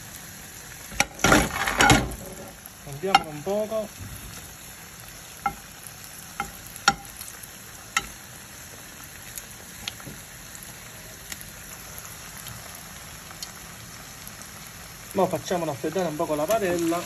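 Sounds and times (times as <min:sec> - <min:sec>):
garlic sizzling in oil: 0:00.0 - 0:17.0.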